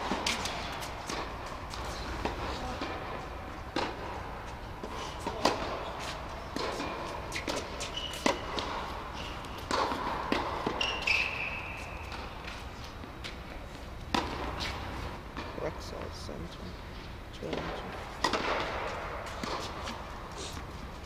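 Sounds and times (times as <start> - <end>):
shoes squeaking on court: 0.0 - 15.2
tennis balls struck by rackets: 0.0 - 15.7, 17.4 - 21.0
tennis balls bouncing on court: 0.0 - 16.1, 17.4 - 21.0.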